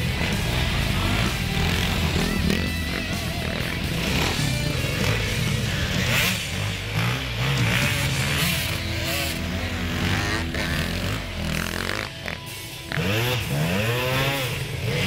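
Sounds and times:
motorcycle engines revving: 0.0 - 15.0.

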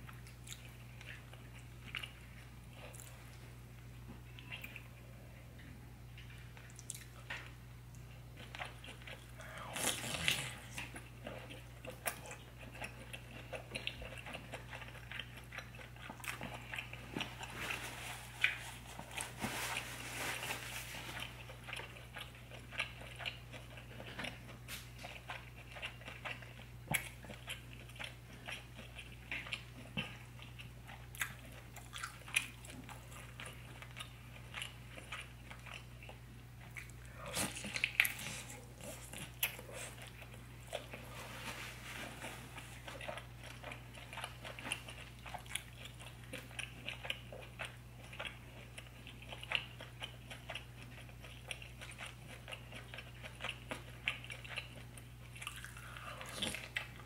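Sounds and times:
steady low hum: 0.0 - 57.0
chewing and wet mouth clicks: 6.2 - 17.0
sticky squelches of food: 6.2 - 57.0.

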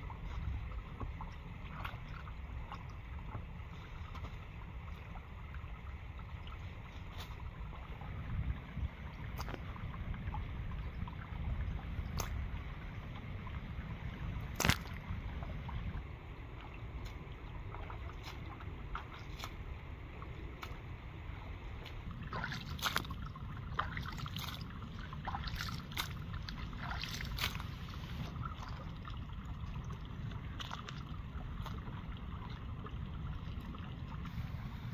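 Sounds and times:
small splashes: 0.0 - 34.9
steady low rumble: 0.0 - 34.9
hands sloshing through water: 14.4 - 20.9, 21.5 - 34.9.

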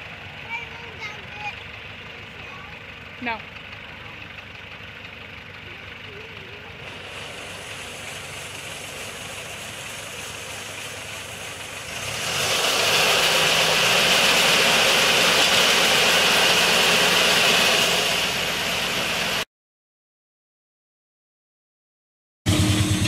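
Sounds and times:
tractor engine running: 0.0 - 19.4, 22.5 - 23.0
grain auger hissing: 6.1 - 19.4.

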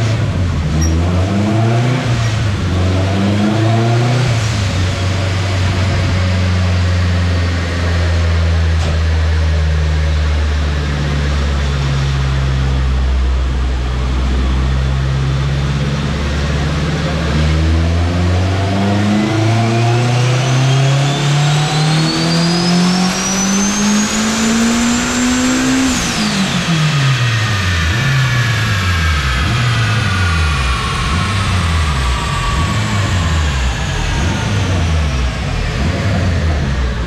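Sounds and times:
car engine revving at full throttle: 0.0 - 37.0
high whine: 11.2 - 37.0.

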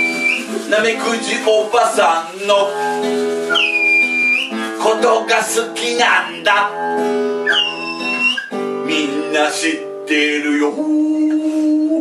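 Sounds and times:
high toy whistle tone: 0.0 - 0.5, 3.5 - 4.6, 7.4 - 8.6
man singing: 0.0 - 3.4, 4.5 - 7.0, 8.8 - 12.0
acoustic guitar strumming: 0.0 - 12.0.

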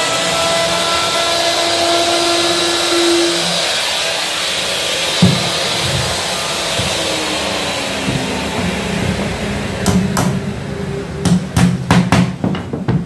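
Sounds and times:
router motor running: 0.0 - 11.1.

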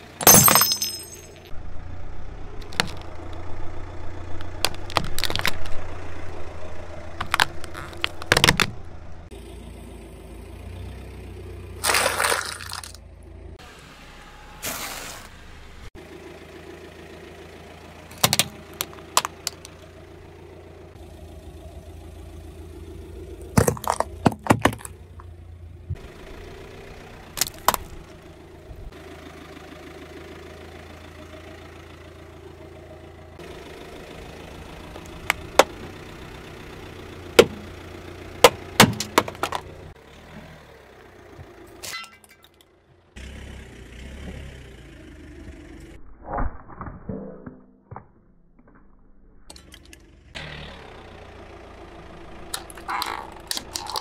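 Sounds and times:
car engine idling: 0.0 - 14.6, 15.3 - 46.0, 49.5 - 54.0
plastic cracking under tire: 4.4 - 5.8, 7.2 - 8.8, 23.6 - 25.0.

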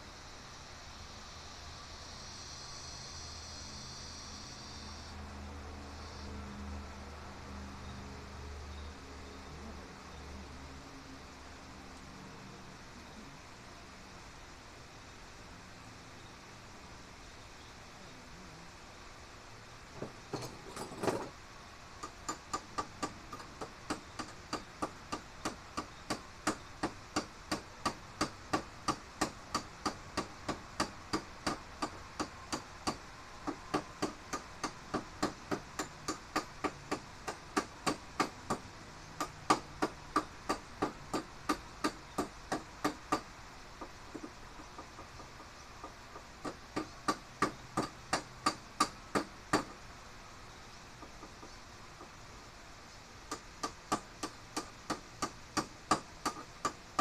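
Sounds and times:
hammer tapping on metal: 22.0 - 45.5, 46.1 - 49.8, 53.3 - 57.0.

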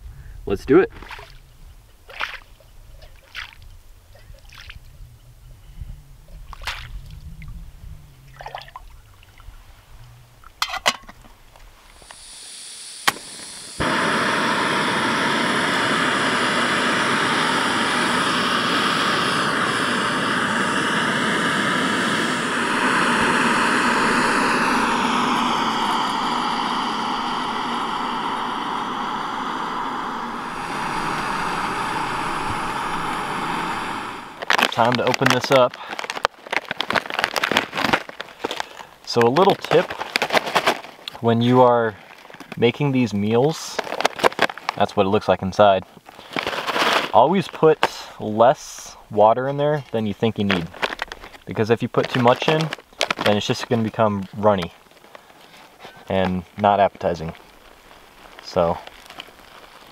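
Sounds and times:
mug scooping splashing water: 0.9 - 1.4
gas valve hissing: 11.9 - 35.8
gas burner flame roaring: 11.9 - 36.0, 58.3 - 59.9.

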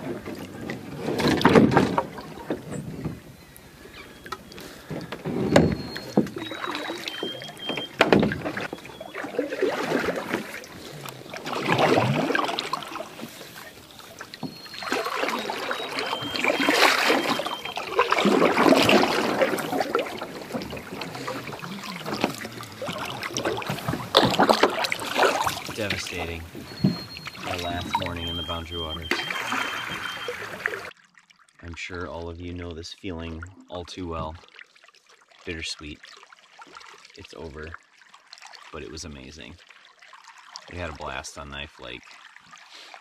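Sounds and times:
paddle knocks: 0.0 - 3.3, 4.2 - 30.5
canoe paddle strokes in water: 0.0 - 30.9.

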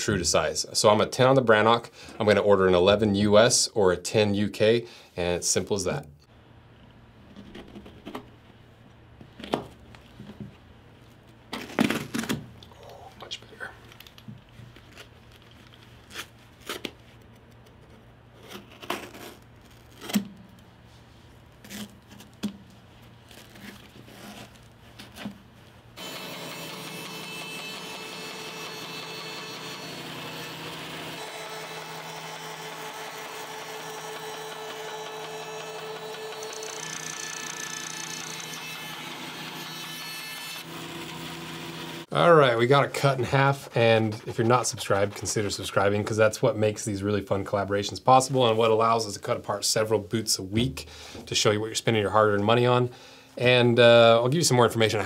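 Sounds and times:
band saw cutting: 26.0 - 42.1.

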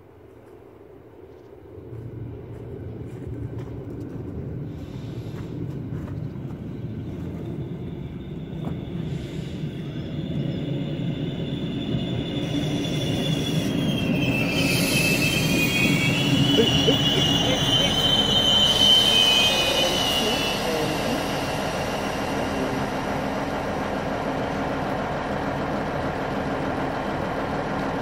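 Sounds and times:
train passing with low rumble: 0.0 - 28.0
high metallic squeal: 7.6 - 23.4
rush of hiss: 14.6 - 23.5.

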